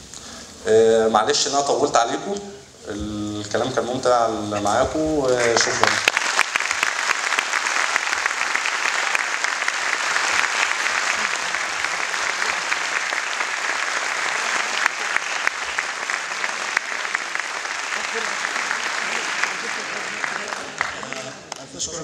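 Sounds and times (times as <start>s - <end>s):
audience applauding: 5.0s - 22.0s.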